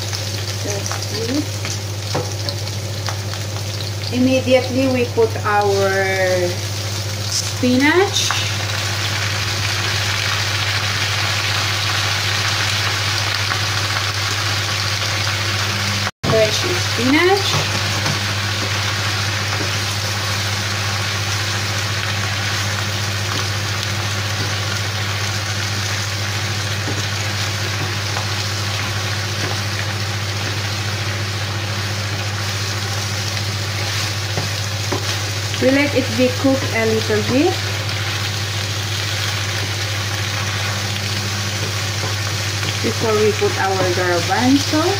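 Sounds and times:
spinach sizzling in oil: 0:00.0 - 0:44.9
steady low hum: 0:15.6 - 0:44.9.

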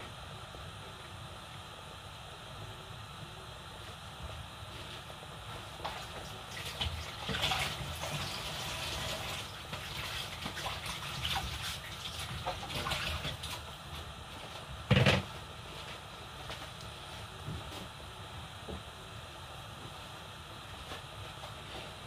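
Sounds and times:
thick soup boiling and popping: 0:03.9 - 0:18.0.

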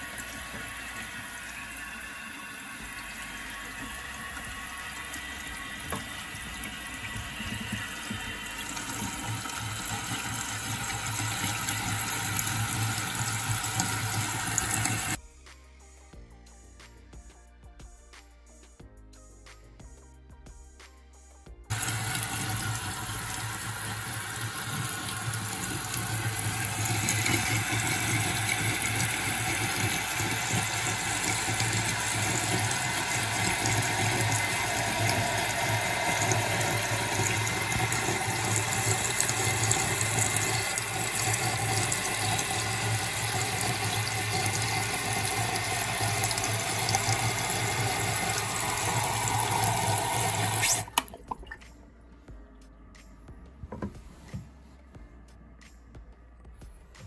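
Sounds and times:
water rushing into toilet tank: 0:00.0 - 0:15.2, 0:21.7 - 0:51.6.

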